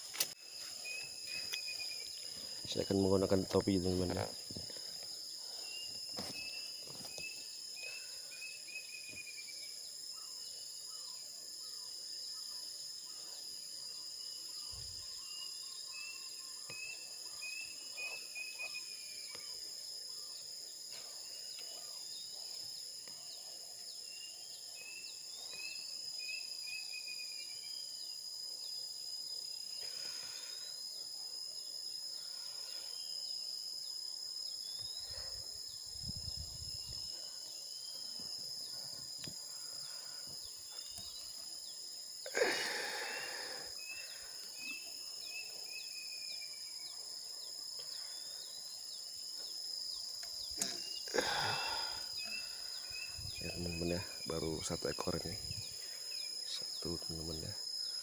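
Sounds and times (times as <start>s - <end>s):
high-pitched insect drone: 0.0s - 58.0s
bird chirps: 0.7s - 28.8s, 32.8s - 42.1s.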